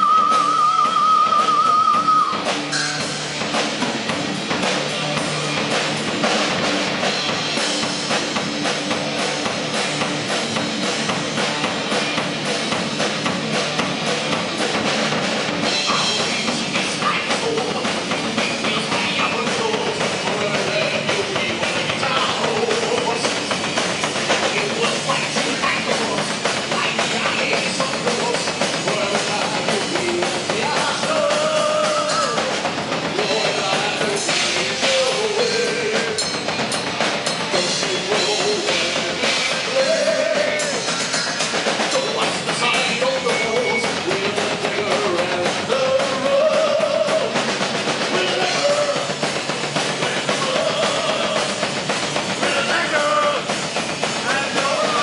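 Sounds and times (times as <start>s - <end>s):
bass guitar: 0.0s - 55.0s
drum kit: 0.0s - 55.0s
electric guitar: 0.0s - 55.0s
man singing: 15.6s - 23.7s, 24.3s - 36.5s, 37.4s - 47.4s, 48.0s - 49.2s, 49.9s - 51.8s, 52.4s - 53.6s, 54.2s - 55.0s.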